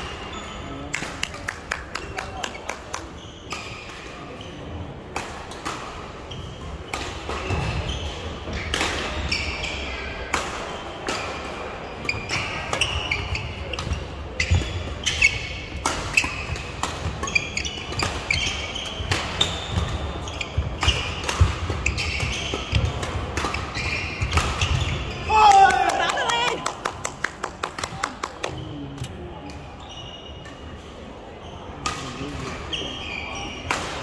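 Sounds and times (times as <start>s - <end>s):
shoes squeaking on court floor: 0.0s - 1.0s, 2.0s - 4.9s, 5.6s - 10.1s, 11.8s - 25.3s, 28.0s - 30.8s, 31.4s - 33.8s
racket hitting shuttlecock: 10.3s - 25.0s.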